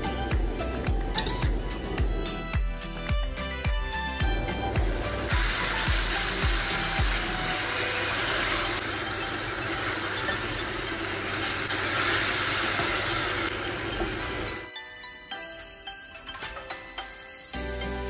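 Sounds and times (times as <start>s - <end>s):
music with low beat: 0.0s - 7.7s.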